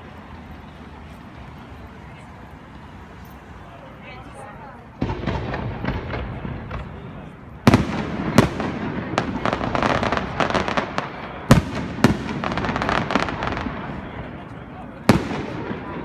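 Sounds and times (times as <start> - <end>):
fireworks crackling: 0.0 - 16.0
fireworks bangs: 4.9 - 16.0.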